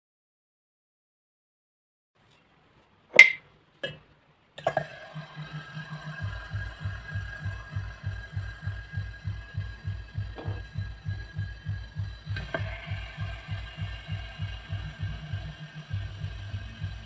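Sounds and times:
mechanical hum: 0:02.2 - 0:17.0
regular low pulse: 0:04.6 - 0:17.0.

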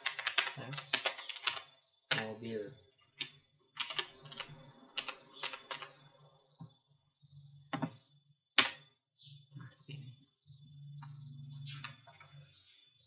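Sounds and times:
keyboard typing clicks: 0:00.0 - 0:02.4, 0:03.2 - 0:06.0.

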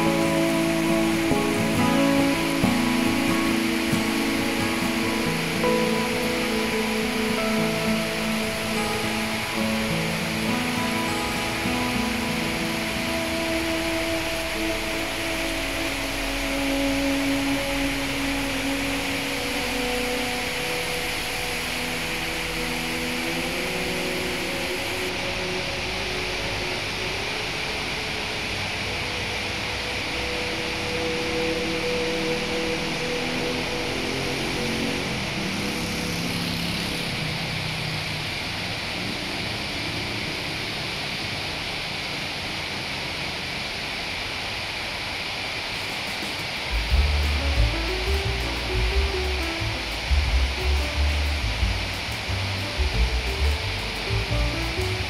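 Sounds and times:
heavy rain pouring: 0:00.0 - 0:55.0
low droning hum: 0:46.6 - 0:55.0.

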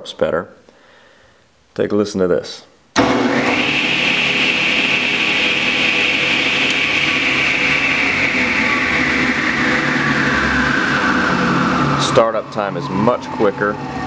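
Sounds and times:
electric motor whining: 0:03.0 - 0:14.0.

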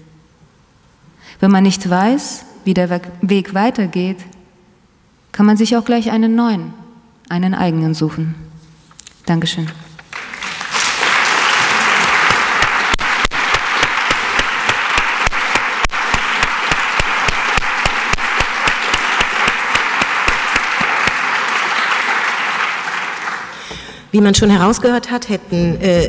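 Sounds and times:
audience applauding: 0:10.0 - 0:24.0.

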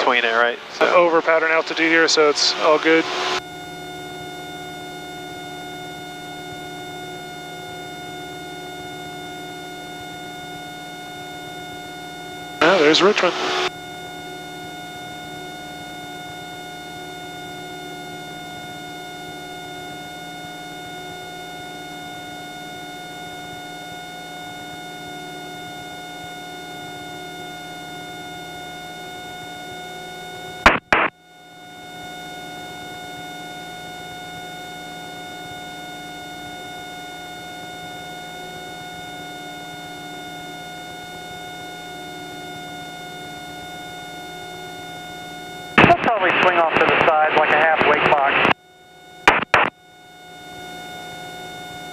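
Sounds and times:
airplane engine and propeller drone: 0:00.0 - 0:05.6, 0:12.6 - 0:13.9, 0:45.8 - 0:48.5
short loud crackle: 0:30.7 - 0:31.1, 0:49.3 - 0:49.7.

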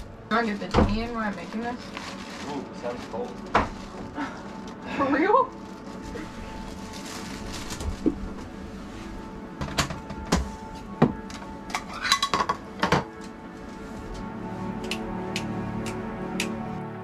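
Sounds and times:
soft background music: 0:00.0 - 0:17.0.

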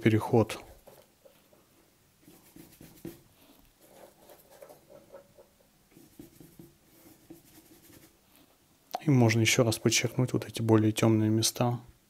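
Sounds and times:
paintbrush strokes on cardboard: 0:02.2 - 0:08.2, 0:09.3 - 0:10.5.

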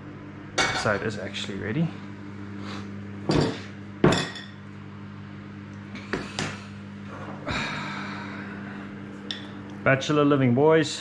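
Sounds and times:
steady low hum: 0:00.0 - 0:11.0
glass bowl and spoon clinking: 0:03.3 - 0:04.6.

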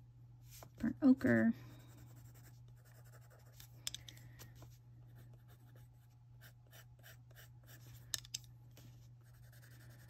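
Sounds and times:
pencil scratching on paper: 0:01.8 - 0:03.7, 0:05.1 - 0:08.0, 0:09.2 - 0:10.0.

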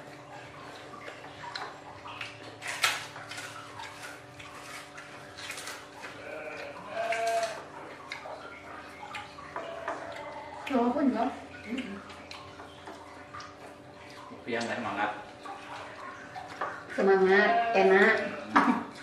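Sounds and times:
animal bleating: 0:06.1 - 0:07.7, 0:09.6 - 0:10.6, 0:17.0 - 0:18.9.

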